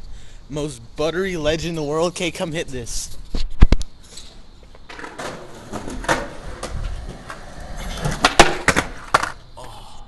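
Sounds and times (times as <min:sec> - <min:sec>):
skateboard wheels rolling on concrete: 0:01.0 - 0:09.8
skateboard clacking on ground: 0:04.9 - 0:09.4.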